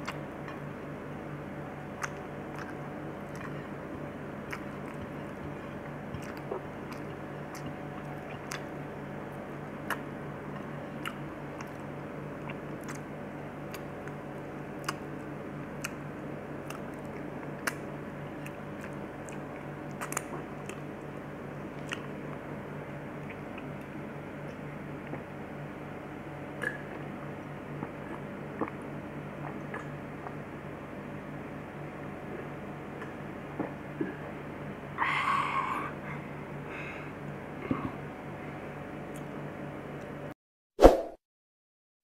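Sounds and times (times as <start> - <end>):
person chewing food: 0.0 - 0.6, 1.9 - 16.0, 16.6 - 22.5, 26.6 - 30.4
steady low hum: 0.0 - 40.4
mouth clicks and smacks: 1.9 - 3.6, 4.4 - 8.7, 12.4 - 13.1, 16.6 - 20.9, 21.8 - 22.1, 26.6 - 27.1, 27.8 - 28.8, 29.4 - 30.4.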